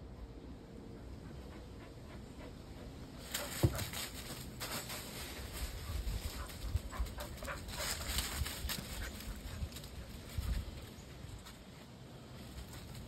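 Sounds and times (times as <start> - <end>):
footsteps crunching dry leaves: 3.2 - 11.7.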